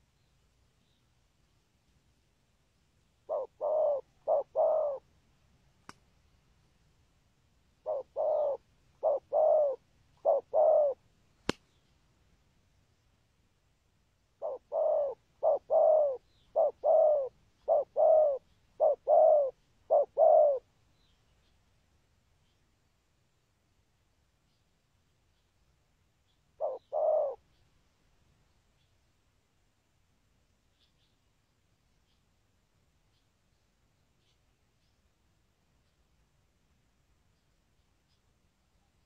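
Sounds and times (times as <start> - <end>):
dove cooing: 3.3 - 5.1, 7.8 - 11.0, 14.4 - 20.7, 26.6 - 27.4.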